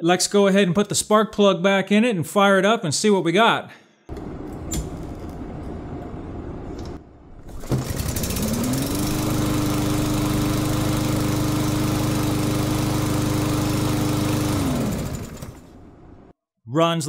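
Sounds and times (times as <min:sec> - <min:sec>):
lawn mower engine running: 0:07.4 - 0:16.3.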